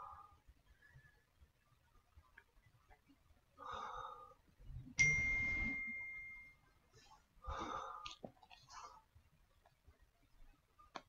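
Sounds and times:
single ringing ding: 5.0 - 6.6.

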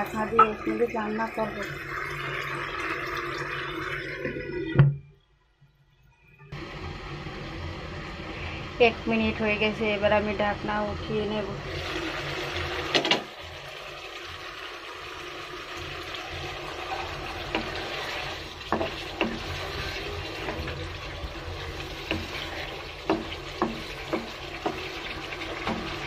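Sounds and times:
food sizzling in a wok: 6.6 - 26.0
spatula knocking against pan: 18.7 - 19.6, 22.0 - 26.0.

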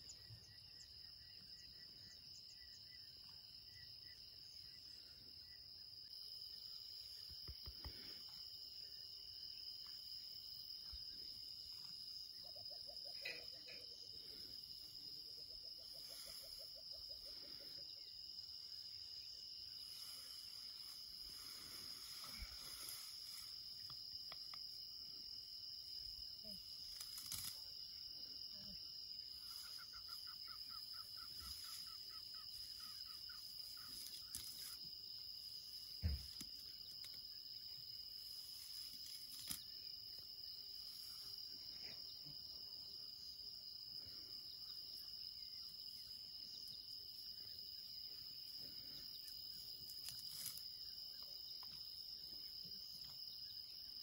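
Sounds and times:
high-pitched insect chirr: 0.0 - 54.0
soft rustles in grass: 15.8 - 17.4, 19.4 - 24.6, 26.6 - 28.0, 29.2 - 42.3, 48.2 - 52.0.

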